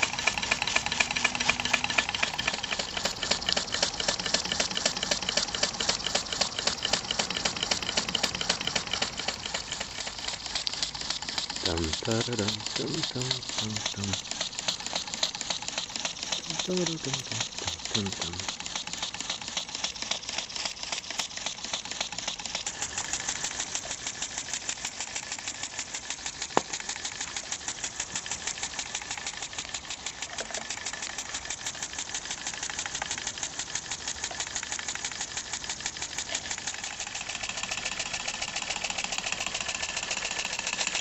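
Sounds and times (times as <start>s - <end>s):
steam engine running fast: 0.0s - 41.0s.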